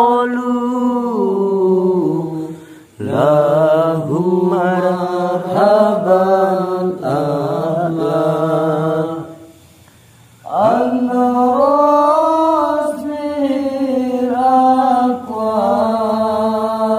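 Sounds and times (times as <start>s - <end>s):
man chanting: 10.5s - 16.9s.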